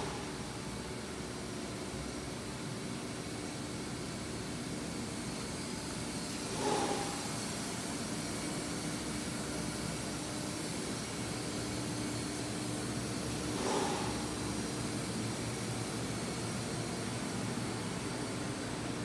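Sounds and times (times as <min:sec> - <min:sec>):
factory machinery humming: 0:00.0 - 0:19.0
short burst of hiss: 0:06.5 - 0:07.3.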